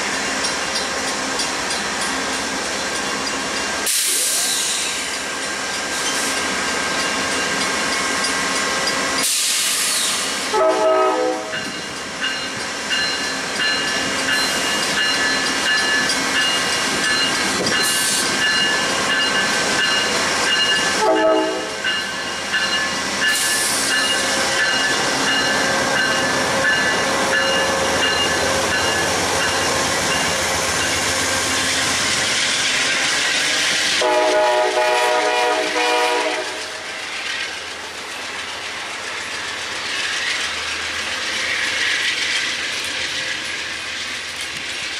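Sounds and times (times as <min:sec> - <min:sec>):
diesel locomotive engine: 0:00.0 - 0:44.9
train wheels on rails: 0:00.0 - 0:44.9
train horn blasts: 0:10.5 - 0:11.7, 0:21.0 - 0:21.8, 0:34.0 - 0:36.9.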